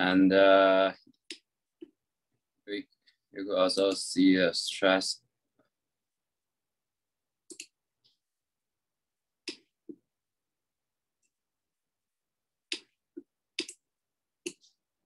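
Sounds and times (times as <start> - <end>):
computer mouse clicks: 7.5 - 7.8, 12.7 - 13.8.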